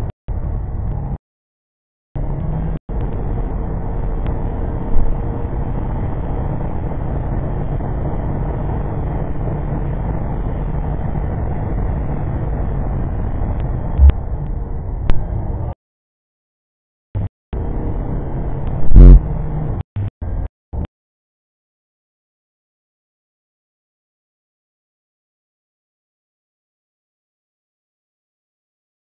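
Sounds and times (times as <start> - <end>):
tyre road and wind noise: 0.0 - 1.2, 2.2 - 15.8, 17.2 - 20.9.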